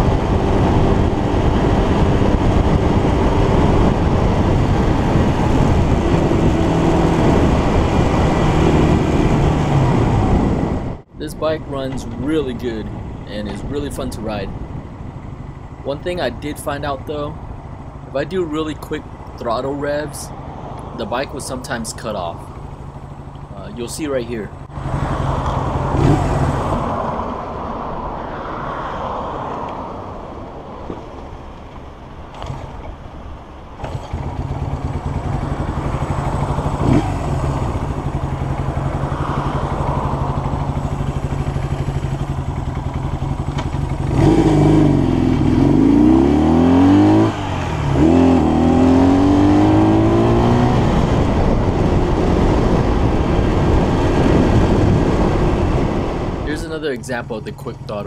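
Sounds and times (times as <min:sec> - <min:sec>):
motorcycle engine revving: 0:00.0 - 0:11.1, 0:24.5 - 0:27.6, 0:33.8 - 0:58.0
motorcycle accelerating: 0:00.0 - 0:28.6, 0:32.3 - 0:33.1, 0:33.8 - 0:58.0.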